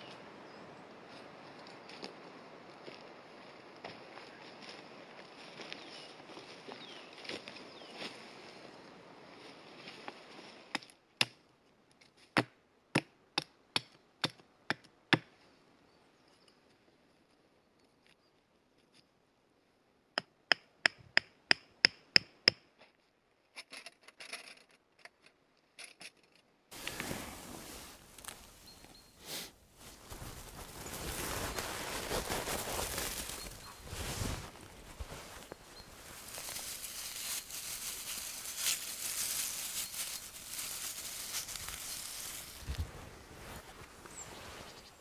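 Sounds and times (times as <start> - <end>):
rustling: 25.8 - 44.9.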